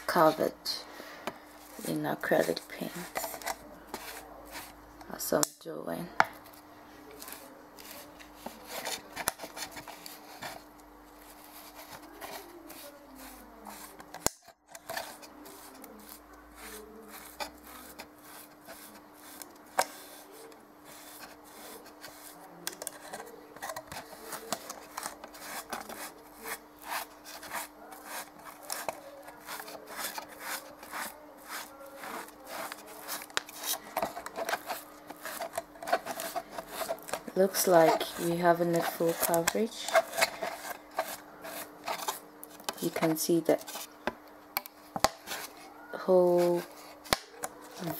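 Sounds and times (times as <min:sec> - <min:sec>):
faint steady hum: 0:00.0 - 0:47.9
rubbing and scraping strokes: 0:14.8 - 0:43.9.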